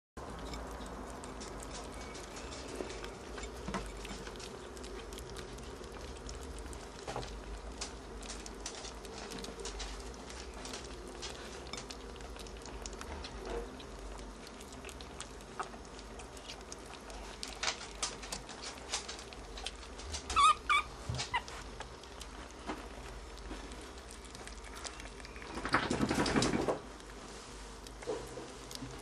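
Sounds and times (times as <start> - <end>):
ferrets chewing and lapping: 0.2 - 29.0
rustling: 0.2 - 29.0
ferret kit squeaking: 20.3 - 21.5.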